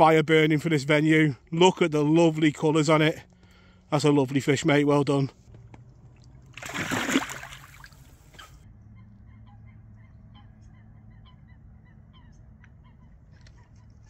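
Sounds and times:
water splash: 6.1s - 8.5s.

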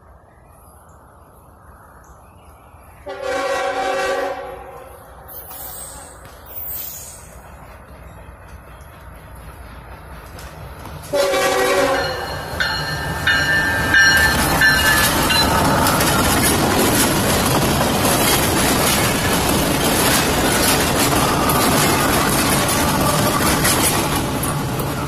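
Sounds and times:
locomotive horn: 3.0s - 5.0s, 11.1s - 12.4s.

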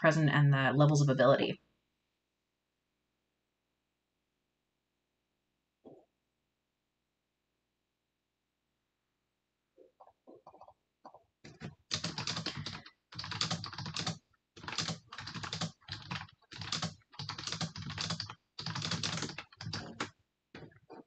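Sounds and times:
typing on computer keyboard: 11.5s - 20.2s.

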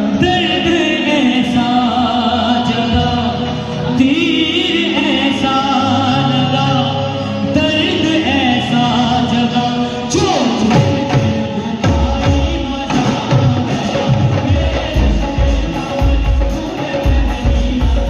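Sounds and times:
men singing: 0.0s - 18.0s
drum strokes with sliding tones: 10.4s - 18.0s.

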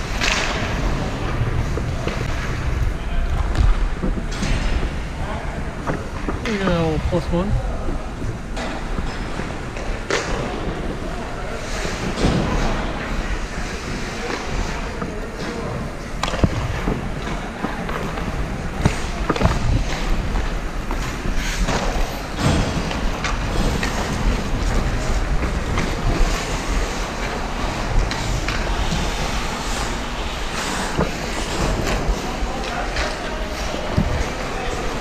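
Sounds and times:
hockey sticks and puck clacking: 0.0s - 7.0s, 8.2s - 35.0s
skates scraping on ice: 7.6s - 35.0s.

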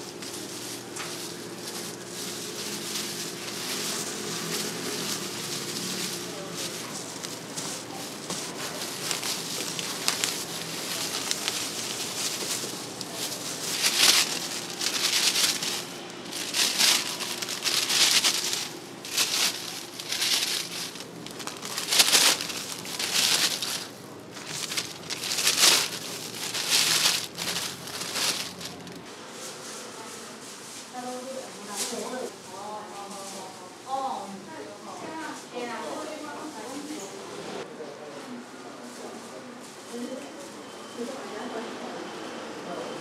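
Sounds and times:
plastic crinkling and rustling: 0.0s - 29.8s, 30.4s - 33.5s.

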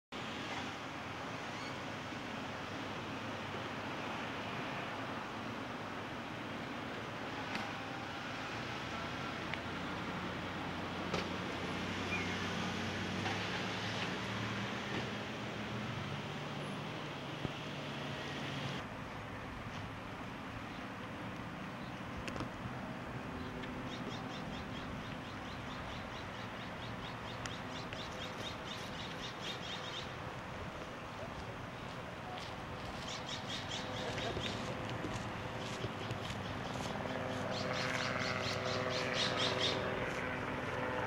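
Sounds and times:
vehicle engine hum: 2.3s - 41.0s
small birds chirping: 23.4s - 30.2s, 33.0s - 34.8s, 35.6s - 39.8s.

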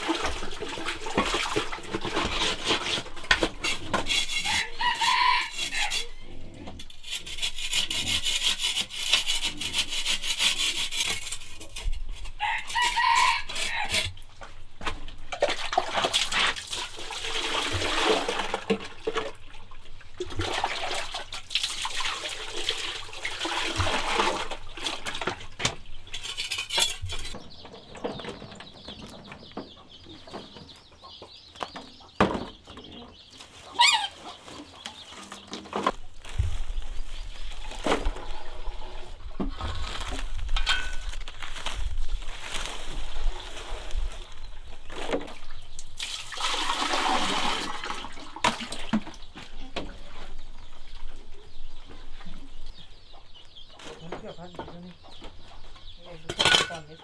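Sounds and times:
rubbing or scraping noise: 1.9s - 14.1s, 26.1s - 27.4s, 33.6s - 45.2s
chickens clucking: 26.2s - 39.7s, 49.0s - 57.0s.

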